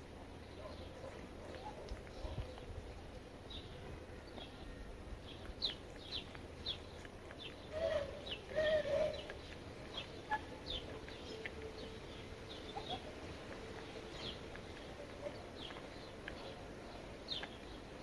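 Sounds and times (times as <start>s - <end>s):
lower wavering bird calls: 7.6s - 13.1s.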